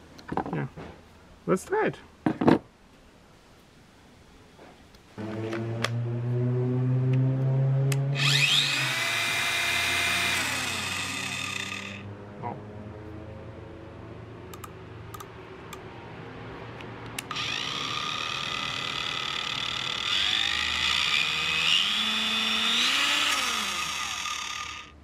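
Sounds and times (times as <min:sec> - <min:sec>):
angle grinder whining: 0:08.2 - 0:12.1, 0:17.2 - 0:25.0.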